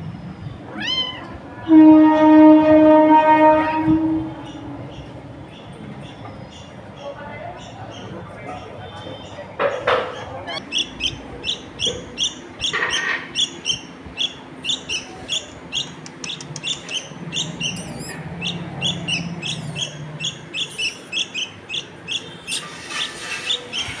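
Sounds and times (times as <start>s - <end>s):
bird chick begging chirps: 10.1s - 24.0s.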